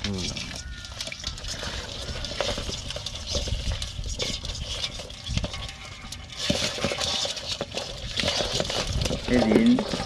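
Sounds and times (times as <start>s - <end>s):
clicks and scrapes in a basin: 0.0s - 10.0s.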